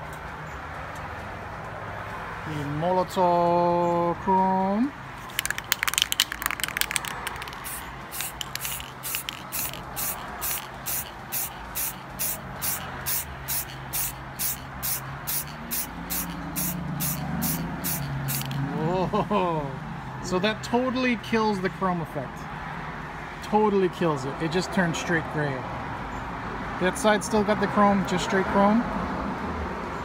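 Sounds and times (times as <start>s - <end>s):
aerosol can rattling: 5.2s - 18.6s
aerosol can spraying in pulses: 5.2s - 18.6s.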